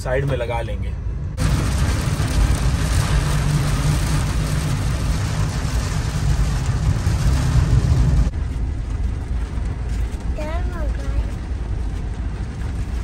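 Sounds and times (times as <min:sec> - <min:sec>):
engine rumble: 0:00.0 - 0:13.0
tyres on wet road: 0:01.3 - 0:13.0
rain on windscreen: 0:01.4 - 0:13.0.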